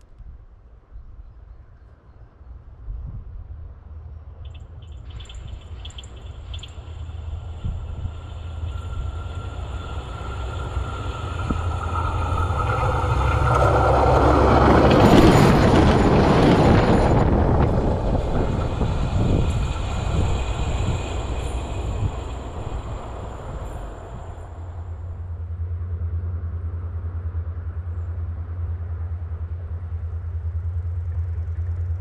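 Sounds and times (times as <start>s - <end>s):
train passing over rails: 3.5s - 32.0s
ringing rail tone: 4.9s - 25.8s.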